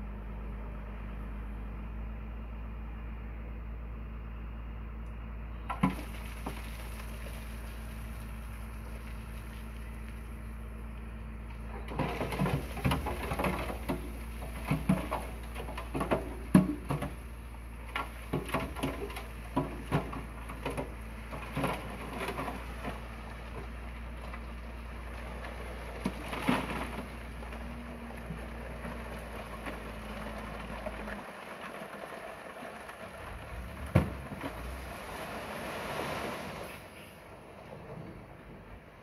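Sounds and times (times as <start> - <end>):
dump truck engine running: 0.0 - 39.0
rock and soil clattering out: 5.7 - 10.4, 11.7 - 36.8.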